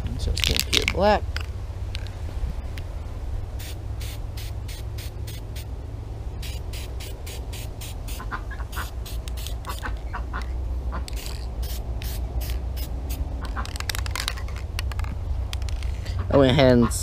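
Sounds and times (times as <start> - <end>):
steady low rumble: 0.0 - 17.0
spray can hissing bursts: 3.6 - 5.7, 6.4 - 9.9, 11.1 - 14.3.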